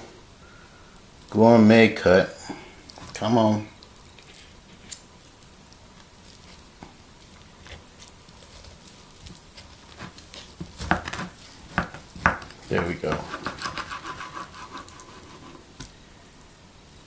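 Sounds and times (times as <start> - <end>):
serrated knife sawing through meat: 12.9 - 15.6.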